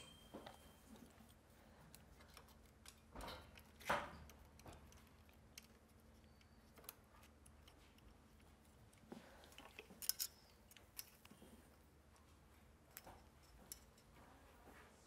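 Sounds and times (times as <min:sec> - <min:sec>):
metal tweezers clicking and scraping: 0:00.0 - 0:11.5.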